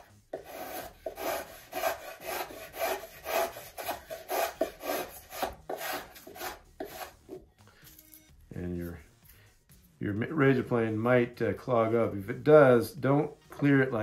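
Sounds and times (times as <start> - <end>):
plane shaving wood: 0.0 - 7.4.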